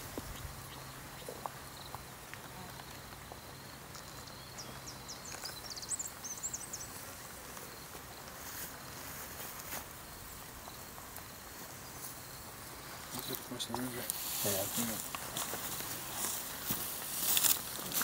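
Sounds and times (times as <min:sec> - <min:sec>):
insects buzzing: 0:00.0 - 0:18.0
footsteps in dry grass: 0:01.3 - 0:18.0
bird chirping: 0:04.0 - 0:07.0.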